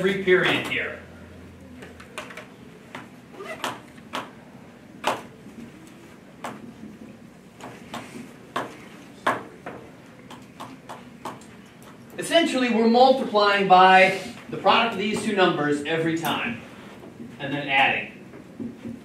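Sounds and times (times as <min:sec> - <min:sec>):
faint room hum: 0:00.0 - 0:19.0
marker tapping on whiteboard: 0:05.0 - 0:05.3, 0:06.4 - 0:06.7, 0:07.6 - 0:11.5.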